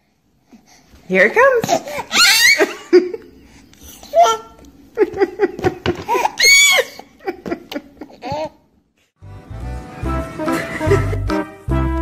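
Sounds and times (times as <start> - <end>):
baby laughing and squealing: 1.8 - 2.9, 3.8 - 4.6, 6.0 - 7.4
baby shrieking: 1.9 - 2.7, 6.1 - 7.1.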